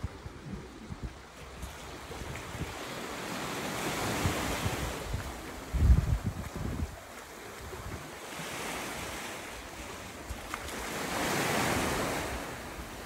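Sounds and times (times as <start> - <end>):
wind buffeting microphone: 0.0 - 9.3
sea surf washing over rocks: 0.0 - 13.0.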